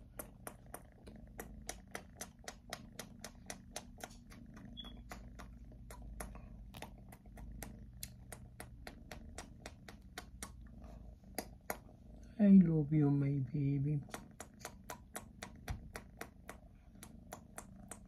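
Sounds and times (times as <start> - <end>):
kitten licking clicks: 0.0 - 11.9, 14.0 - 18.0
kitten purring: 0.0 - 18.0.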